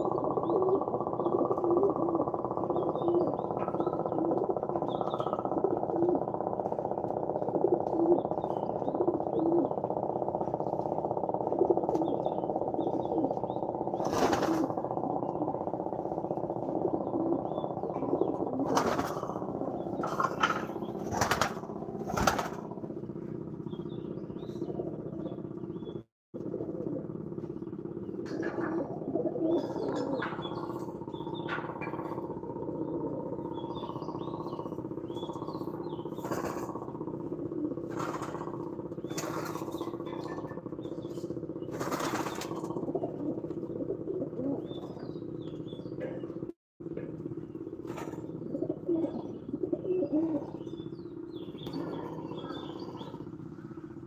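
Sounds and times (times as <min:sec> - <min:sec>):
pigeons cooing: 0:00.0 - 0:54.0
wings flapping: 0:14.0 - 0:15.0, 0:18.5 - 0:22.8, 0:36.2 - 0:36.8, 0:37.8 - 0:40.6, 0:41.7 - 0:43.4.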